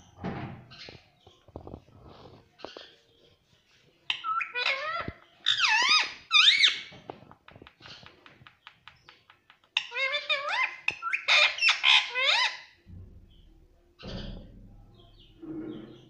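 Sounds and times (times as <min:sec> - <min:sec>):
parakeet squeaky calls: 0:04.1 - 0:06.9, 0:09.8 - 0:12.7.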